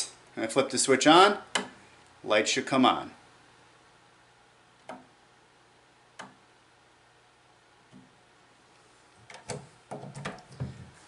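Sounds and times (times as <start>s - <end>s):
wall toggle switch clicking: 6.2s - 6.4s.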